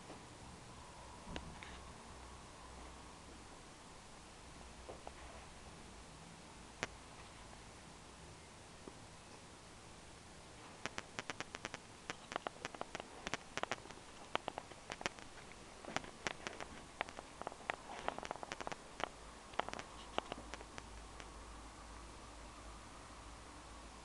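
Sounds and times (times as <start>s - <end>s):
sharp clicks and taps: 10.8s - 21.3s.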